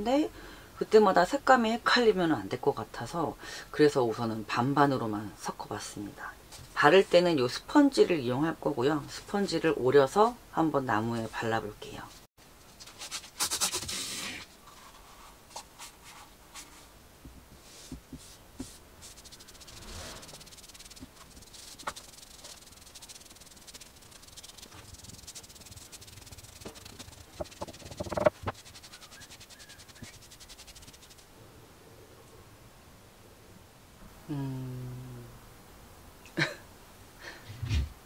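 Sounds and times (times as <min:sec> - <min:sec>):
sponge rubbing on wood: 0:17.6 - 0:31.2.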